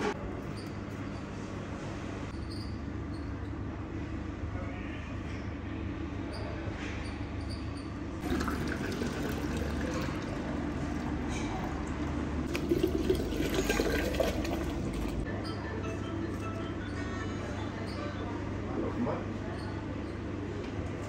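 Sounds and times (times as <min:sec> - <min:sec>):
drink pouring into pitcher: 0:08.2 - 0:11.7, 0:12.4 - 0:15.2.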